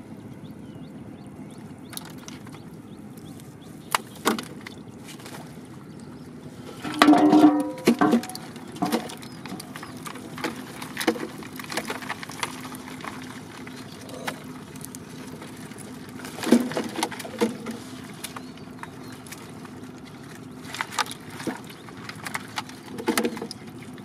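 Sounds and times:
faint steady hum: 0:00.0 - 0:24.0
fish handled in plastic crate: 0:03.4 - 0:05.8, 0:07.8 - 0:24.0
plastic bottle knocking and crinkling: 0:06.8 - 0:13.3, 0:16.2 - 0:17.8.

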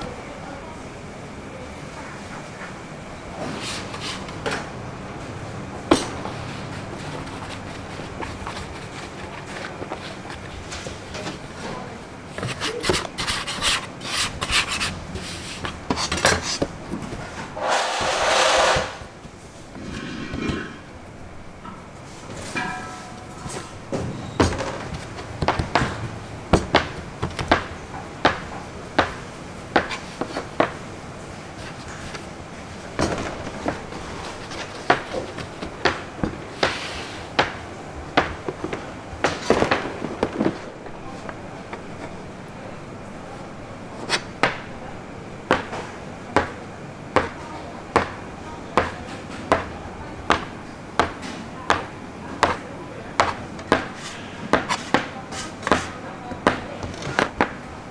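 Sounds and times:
steady hiss: 0:17.5 - 0:21.1.

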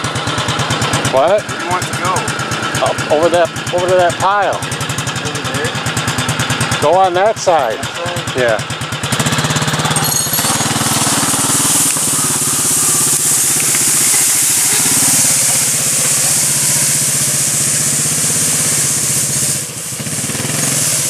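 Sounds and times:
engine running under load: 0:00.0 - 0:21.0
branches scraping over pavement: 0:10.3 - 0:15.8.

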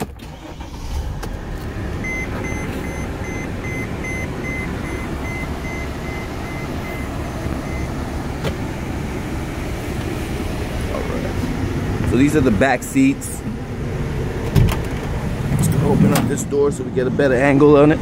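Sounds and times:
diesel engine idling: 0:00.0 - 0:18.0
dashboard warning chime beeping: 0:02.0 - 0:08.4.

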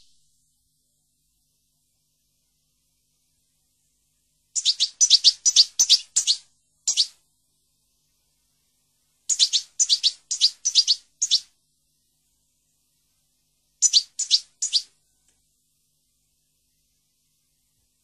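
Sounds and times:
songbird chirping: 0:00.0 - 0:00.3, 0:04.5 - 0:07.2, 0:09.3 - 0:11.6, 0:13.8 - 0:15.4.

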